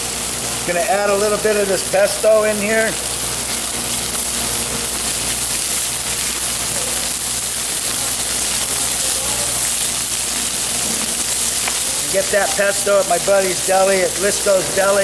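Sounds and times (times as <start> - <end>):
fish sizzling in frying pan: 0.0 - 15.0.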